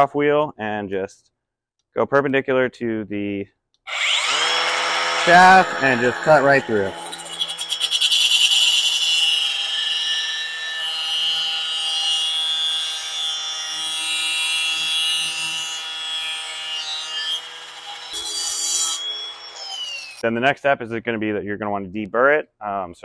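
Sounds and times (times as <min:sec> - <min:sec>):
angle grinder cutting metal: 0:03.9 - 0:20.2.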